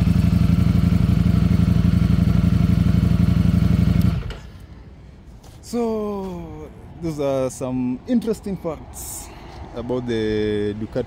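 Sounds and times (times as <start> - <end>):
motorcycle engine running steadily: 0.0 - 4.5.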